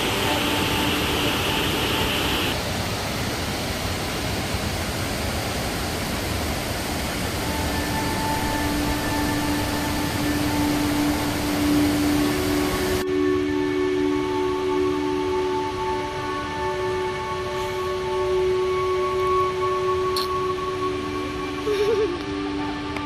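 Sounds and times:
waterfall roaring: 0:00.0 - 0:13.0.

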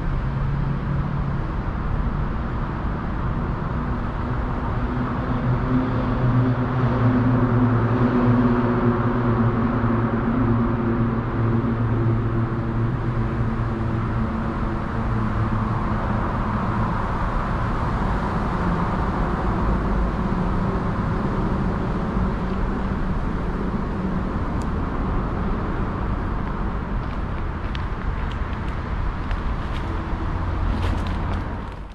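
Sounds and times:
city traffic noise: 0:00.0 - 0:31.9
vehicle engine humming: 0:08.7 - 0:31.9.

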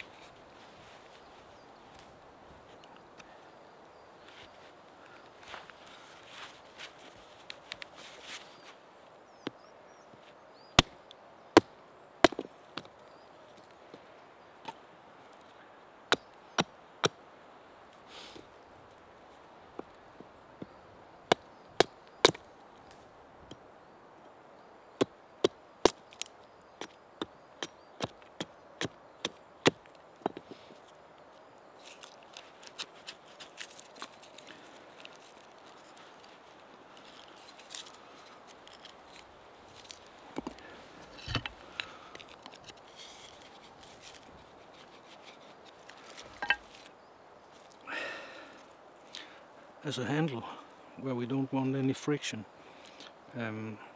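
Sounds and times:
hatchet chopping wood: 0:11.6 - 0:12.9, 0:21.3 - 0:22.4.

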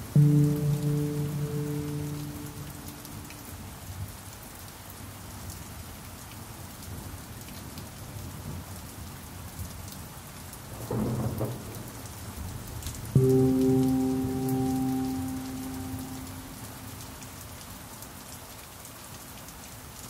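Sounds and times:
rain falling: 0:00.0 - 0:20.0
thunder: 0:10.8 - 0:12.0.

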